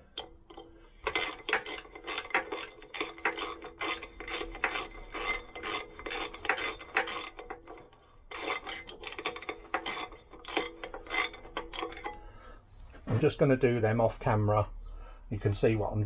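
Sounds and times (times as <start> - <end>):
ratcheting spanner clicking: 0.0 - 12.2.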